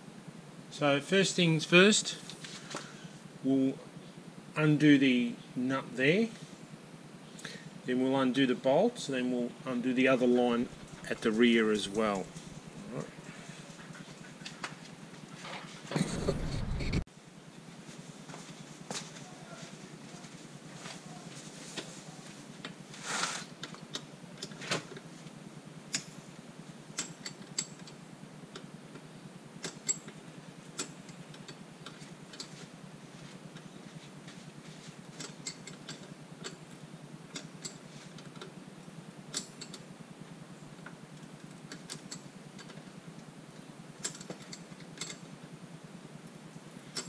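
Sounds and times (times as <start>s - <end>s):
spanner clicking on bolts: 26.9s - 29.0s, 29.6s - 32.6s, 35.1s - 38.6s, 39.2s - 39.9s, 40.7s - 42.9s, 43.5s - 45.3s.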